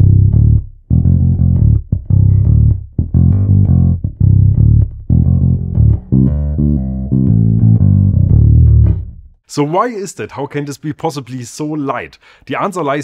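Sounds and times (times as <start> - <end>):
electric bass groove: 0.0 - 9.4.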